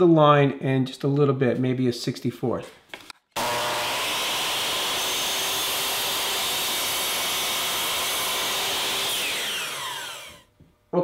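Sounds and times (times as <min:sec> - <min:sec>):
miter saw cutting wood: 0:03.4 - 0:10.5.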